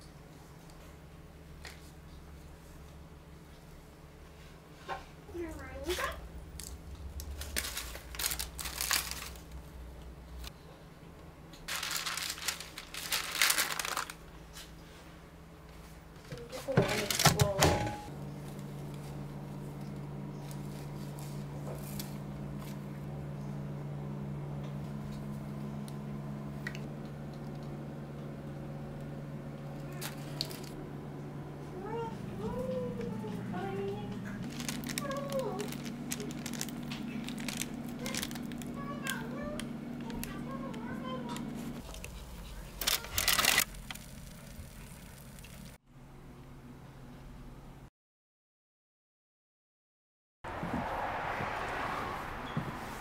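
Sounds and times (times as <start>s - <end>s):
steady low hum: 0.0s - 47.9s
paper and packaging crinkling: 5.8s - 9.7s, 11.6s - 14.7s, 16.2s - 22.8s, 29.8s - 30.8s, 34.2s - 45.8s.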